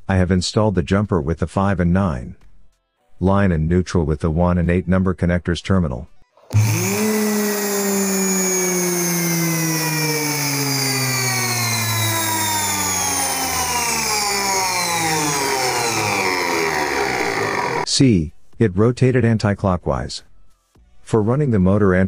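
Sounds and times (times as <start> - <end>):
washing machine motor whine: 6.5 - 17.9.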